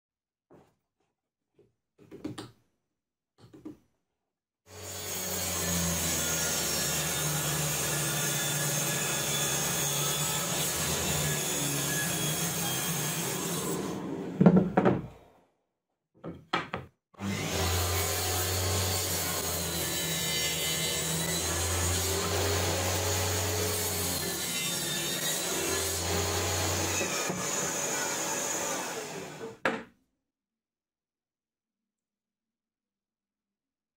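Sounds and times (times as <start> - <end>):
table saw cutting plywood: 4.7 - 15.0, 17.2 - 29.7.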